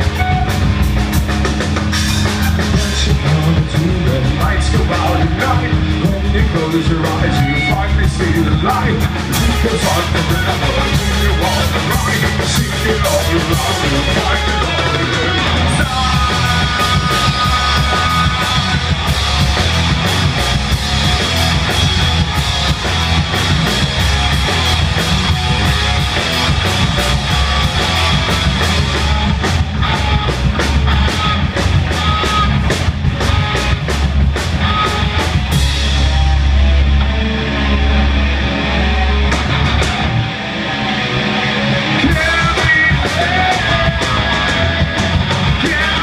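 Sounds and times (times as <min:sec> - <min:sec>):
bass guitar: 0:00.0 - 0:46.0
drum kit: 0:00.0 - 0:46.0
electric guitars: 0:00.0 - 0:46.0.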